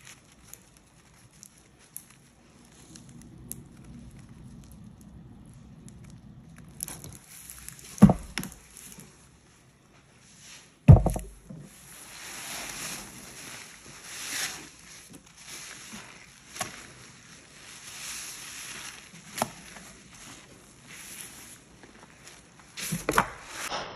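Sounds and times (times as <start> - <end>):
wet sponge squeezing: 0.0 - 23.7
loud thumps: 8.0 - 8.6, 10.9 - 11.7.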